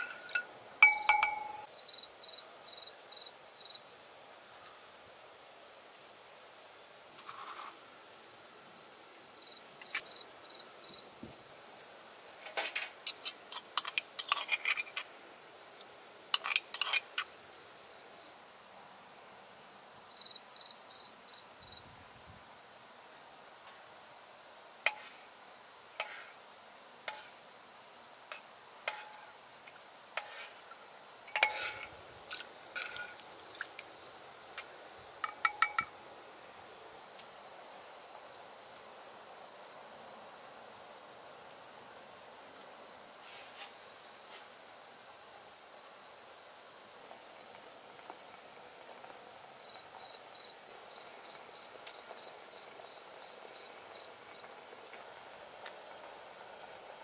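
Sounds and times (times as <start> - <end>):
glass jars and utensils clinking: 0.0 - 1.7, 31.4 - 31.9, 35.2 - 35.9
crickets chirping: 0.0 - 57.0.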